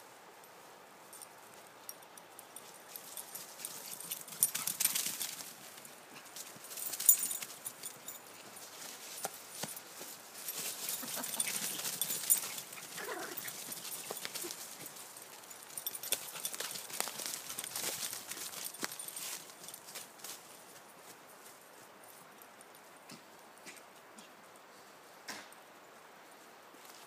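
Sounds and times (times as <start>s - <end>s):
footsteps in dry leaves: 3.0s - 21.6s
dog whining: 13.0s - 13.6s.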